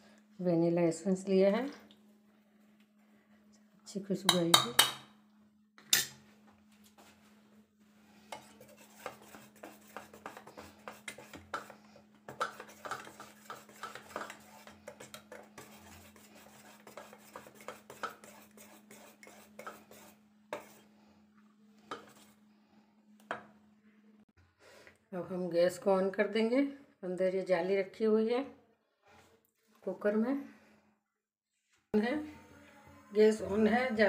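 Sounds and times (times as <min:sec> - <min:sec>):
faint steady hum: 0:00.0 - 0:26.0
metal spoon scraping a steel bowl: 0:08.3 - 0:20.8.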